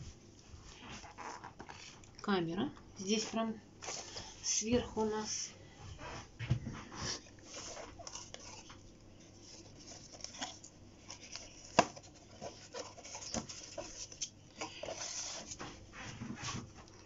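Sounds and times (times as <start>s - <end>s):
cardboard rustling and scraping: 0.6s - 2.0s, 6.0s - 17.0s.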